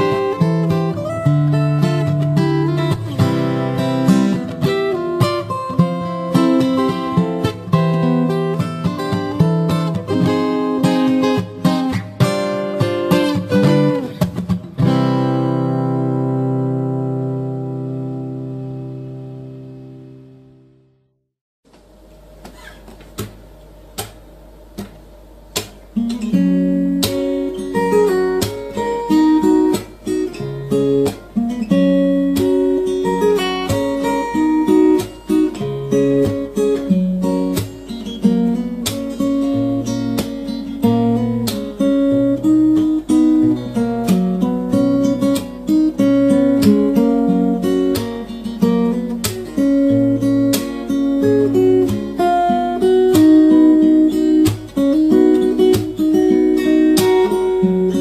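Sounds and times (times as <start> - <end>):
acoustic guitar playing: 0.0 - 21.2, 22.3 - 58.0.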